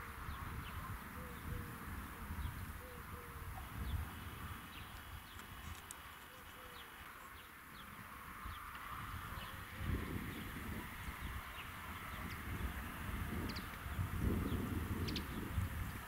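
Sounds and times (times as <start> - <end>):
gusty wind on microphone: 0.0 - 5.8, 8.0 - 16.0
small birds chirping: 0.0 - 16.0
dove cooing: 1.1 - 1.8, 2.7 - 3.8, 6.3 - 6.9.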